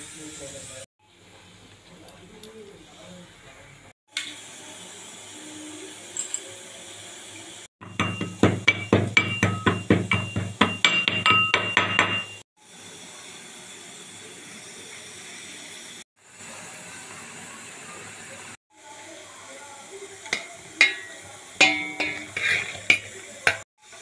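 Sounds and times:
pestle clinking in metal mortar: 0:07.8 - 0:12.4, 0:20.3 - 0:23.6.

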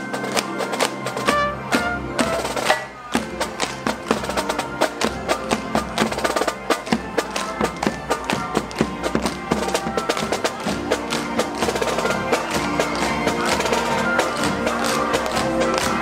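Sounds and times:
upbeat music with percussive beat: 0:00.0 - 0:16.0.

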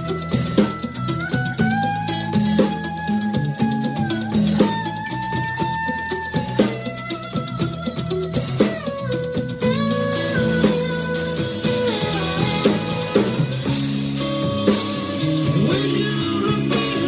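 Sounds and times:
bass guitar: 0:00.0 - 0:17.0
drum kit steady beat: 0:00.0 - 0:17.0
lead electric guitar bending notes: 0:00.0 - 0:17.0.

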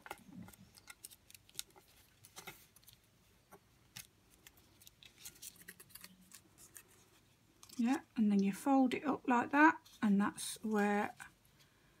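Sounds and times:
paper being folded and creased: 0:00.2 - 0:03.1, 0:03.9 - 0:07.9.

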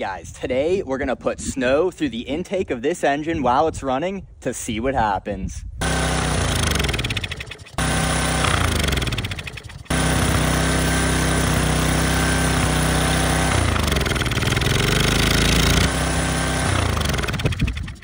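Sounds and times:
small engine running fast: 0:05.8 - 0:18.0.

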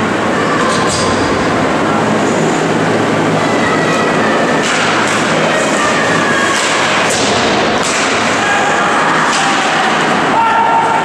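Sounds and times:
loud rink noise: 0:00.0 - 0:11.0
hockey sticks and puck cracking: 0:04.5 - 0:05.4, 0:06.4 - 0:10.4.

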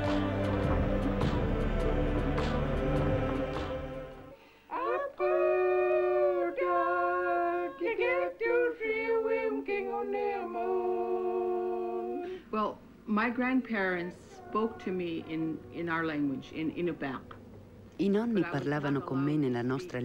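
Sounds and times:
women singing together: 0:04.7 - 0:12.5, 0:13.7 - 0:17.4.

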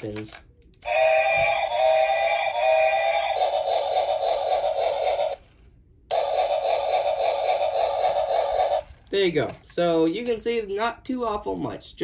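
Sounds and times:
electronic chugging sound: 0:00.9 - 0:05.4, 0:06.1 - 0:08.9
toy whistle tone: 0:00.9 - 0:05.4.

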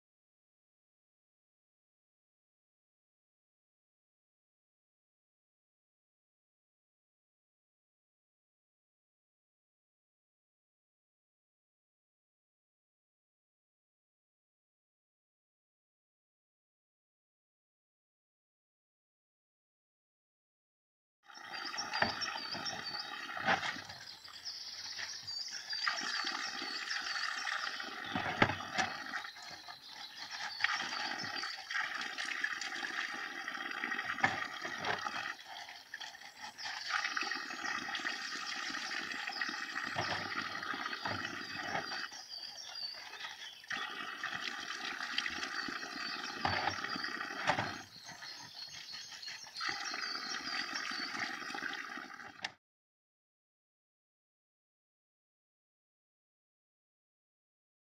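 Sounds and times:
water pouring into plastic bottles: 0:21.3 - 0:52.6.

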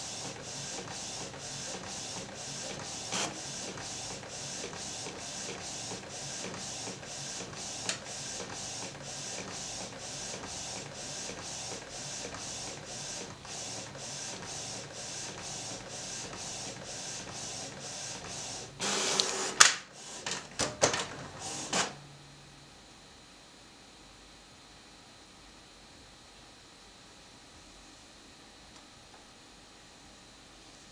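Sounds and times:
printer feeding out sheet: 0:00.0 - 0:22.0.

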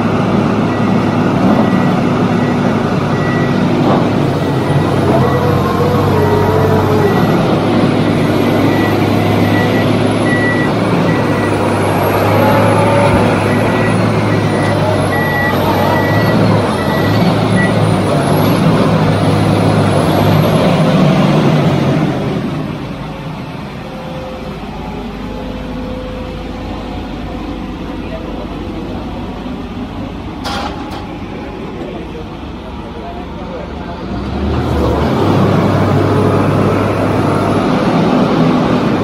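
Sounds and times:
piling rig diesel engine and hydraulics: 0:00.0 - 0:39.0
high warning beep: 0:08.6 - 0:11.8, 0:12.7 - 0:17.9.

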